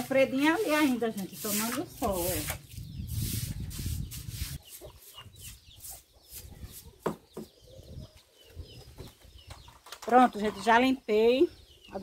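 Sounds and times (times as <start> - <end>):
broom scrubbing floor: 0.4 - 4.8
chicks peeping: 2.2 - 12.0
chickens clucking: 4.1 - 11.1.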